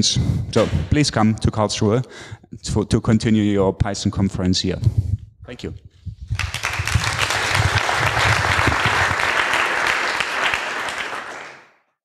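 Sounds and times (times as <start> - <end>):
audience applauding: 6.4 - 11.9.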